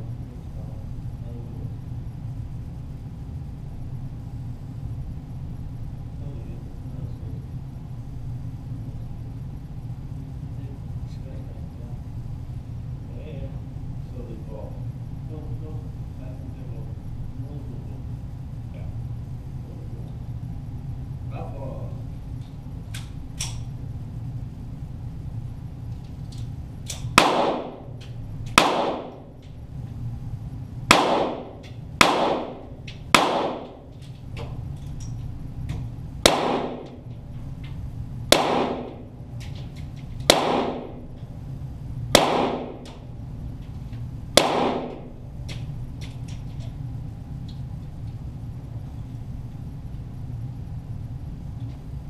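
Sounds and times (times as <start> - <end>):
low steady hum: 0.0 - 52.0
pistol shots: 27.0 - 29.3, 30.9 - 33.9, 36.2 - 37.0, 38.3 - 39.1, 40.2 - 41.0, 42.1 - 43.0, 44.4 - 45.1.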